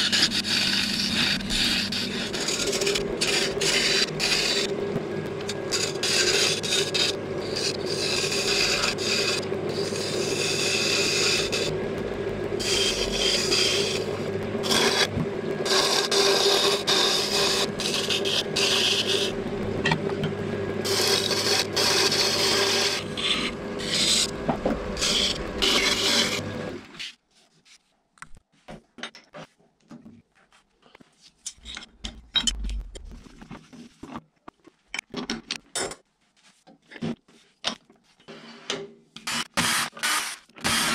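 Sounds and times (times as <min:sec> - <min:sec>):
turning tool scraping wood: 0:00.0 - 0:04.8, 0:05.4 - 0:27.2
lathe motor hum: 0:00.2 - 0:26.9.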